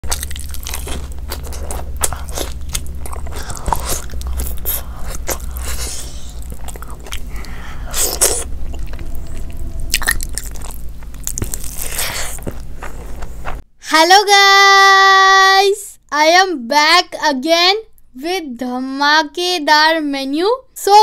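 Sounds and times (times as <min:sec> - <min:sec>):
wet crunchy mouth clicks: 0:00.0 - 0:08.9
person chewing crunchy food: 0:00.0 - 0:13.6.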